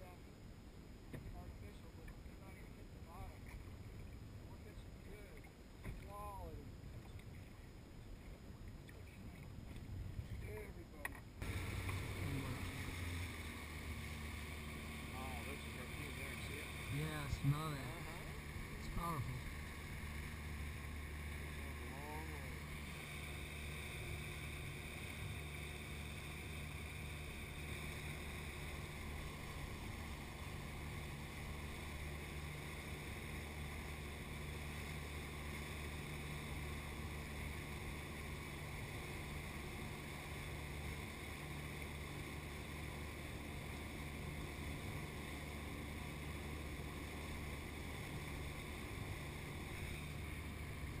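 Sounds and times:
outboard motor running: 0.0 - 51.0
wake water rushing: 11.4 - 51.0.

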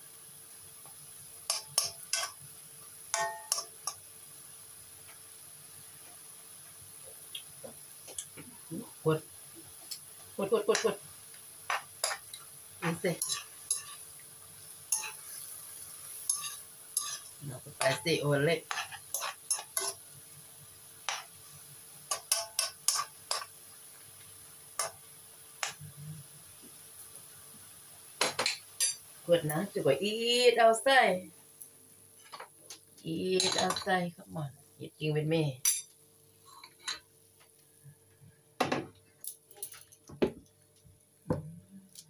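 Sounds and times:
metal utensil scraping a wok: 11.7 - 14.1, 14.9 - 20.0, 22.1 - 23.5.

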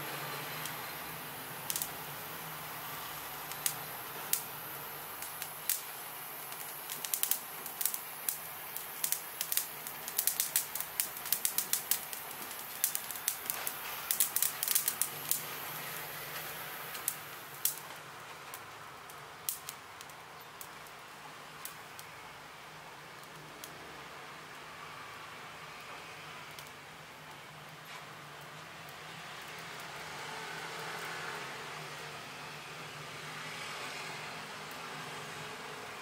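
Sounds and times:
butane torch hissing: 0.0 - 20.2
burning leaves crackling: 0.0 - 36.0.

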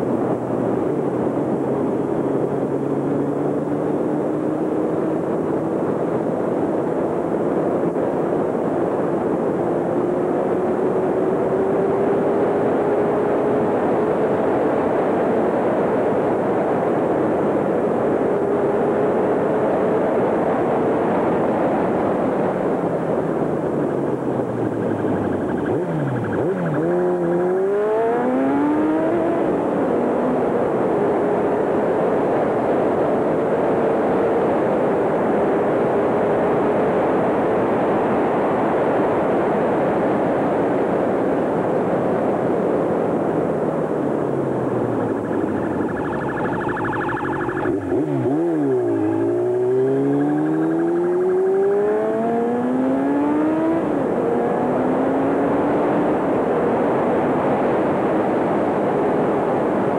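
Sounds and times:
road and wind noise: 0.0 - 59.9
vehicle engine accelerating: 23.4 - 31.4, 43.4 - 59.2.

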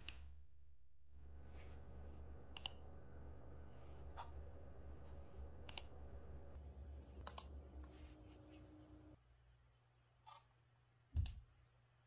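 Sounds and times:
faint low hum: 0.0 - 12.0
computer mouse clicking: 2.5 - 2.8, 5.6 - 5.9, 7.2 - 7.5.

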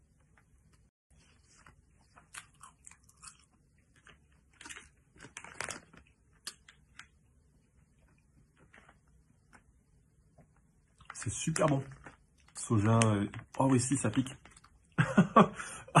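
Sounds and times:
person chewing crunchy snack: 1.3 - 6.8.

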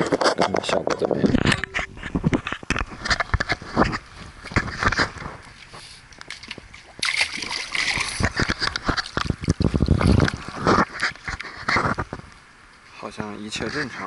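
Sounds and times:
water splashing: 1.2 - 12.4.

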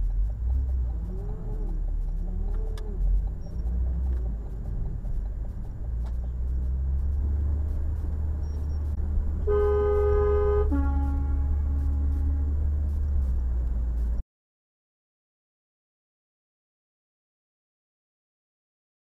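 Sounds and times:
motor vehicle rumble: 0.0 - 14.2.

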